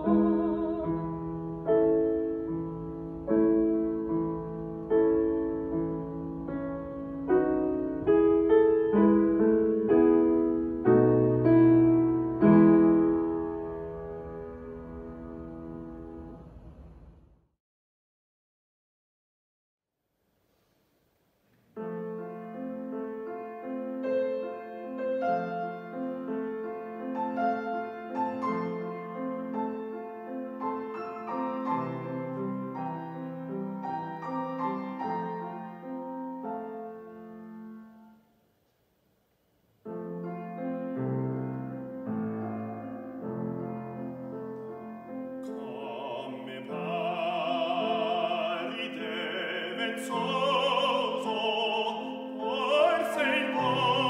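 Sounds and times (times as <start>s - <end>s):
baritone singing with vibrato: 0.0s - 1.3s, 45.4s - 54.0s
classical piano playing: 0.0s - 17.4s, 21.7s - 38.4s, 39.8s - 54.0s.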